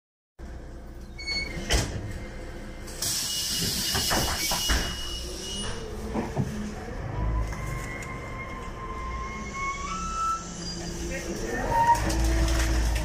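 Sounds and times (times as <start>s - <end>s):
bus engine running: 1.8s - 13.0s.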